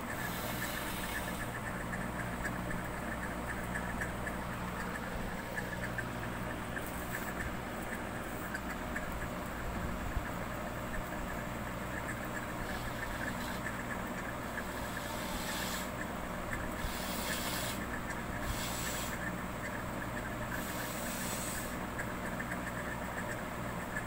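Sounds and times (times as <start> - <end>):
low mechanical hum: 0.0 - 24.0
hiss: 0.1 - 1.5, 14.6 - 15.9, 16.8 - 19.3, 20.5 - 21.8.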